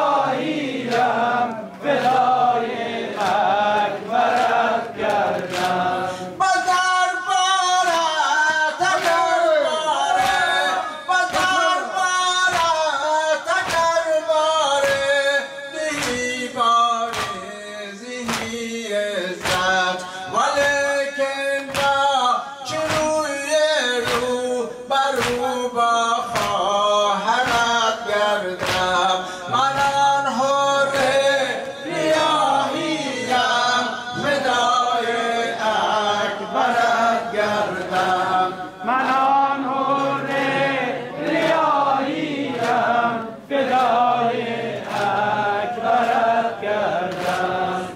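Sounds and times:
man singing lament: 5.1 - 40.8
chest beating slaps: 28.6 - 29.0.

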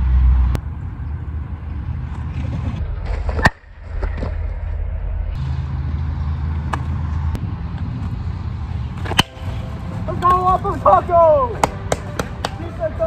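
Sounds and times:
traffic rumble: 0.0 - 13.0
bat hitting ball: 9.0 - 10.4.

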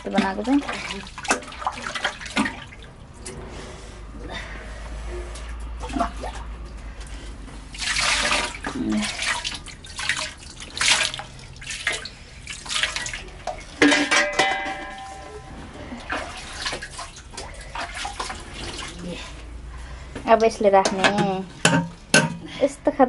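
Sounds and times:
water pouring and splashing: 0.0 - 22.4
metallic clank: 13.8 - 16.0.

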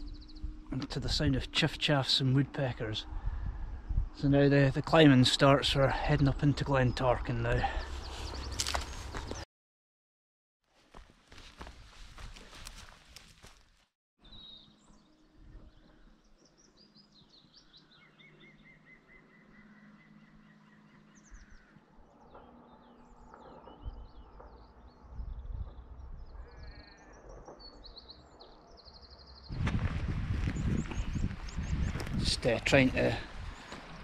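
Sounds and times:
small birds singing and chirping: 0.0 - 2.2, 4.1 - 9.4, 14.2 - 29.6, 30.4 - 34.0
wind buffeting microphone: 3.0 - 4.9, 23.7 - 26.7, 29.5 - 34.0.

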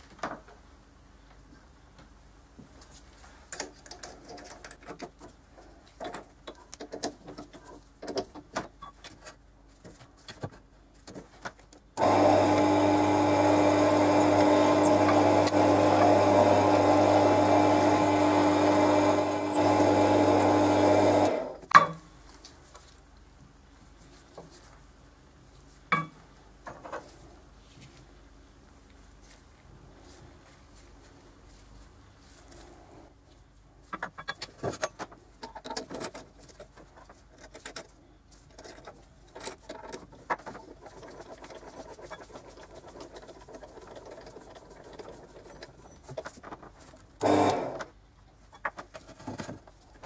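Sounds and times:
drill bit boring into wood: 12.0 - 21.5, 47.2 - 47.8
drill press motor humming: 12.0 - 21.6, 47.2 - 47.8.

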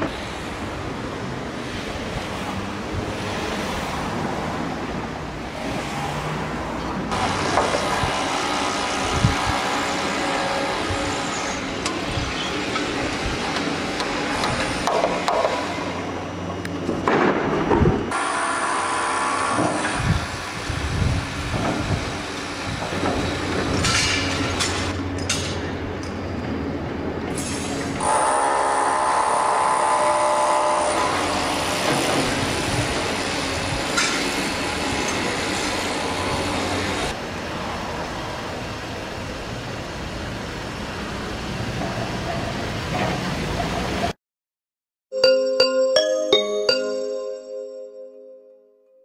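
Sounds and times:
heavy machinery running: 7.1 - 25.9.

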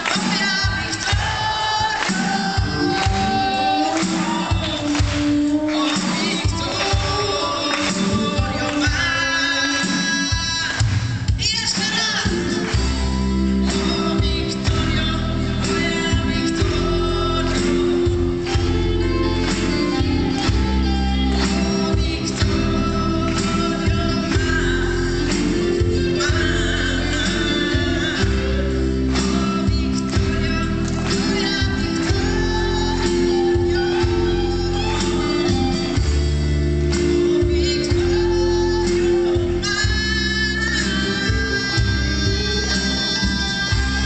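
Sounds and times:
man singing into microphone: 0.0 - 12.8
live band playing: 0.0 - 44.0.

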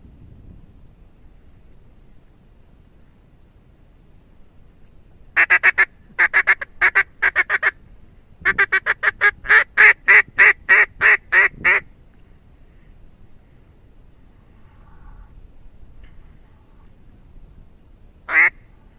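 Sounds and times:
duck quacking: 5.4 - 7.8, 18.3 - 18.6.

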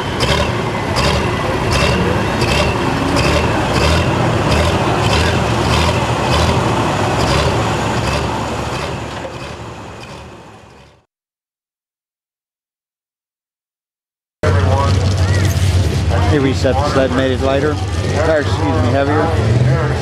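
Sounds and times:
diesel tractor idling: 0.0 - 11.0.

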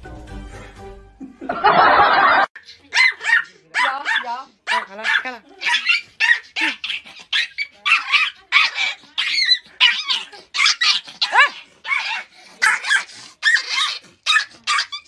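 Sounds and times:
dog yelp: 2.6 - 15.0
small dog yapping: 2.9 - 15.0.

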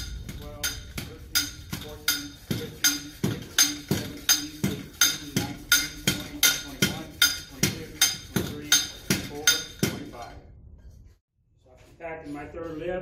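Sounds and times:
soil rammer metallic knocks: 0.0 - 10.3.

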